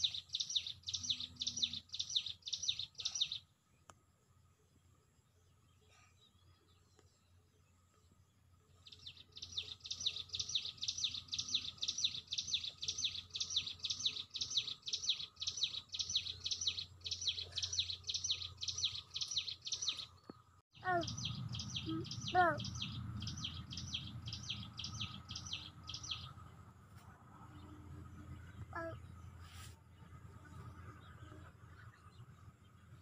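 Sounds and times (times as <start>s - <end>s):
lower bird calls: 0.0s - 3.5s, 8.9s - 26.5s
bird chirping: 0.0s - 4.0s, 4.7s - 33.0s.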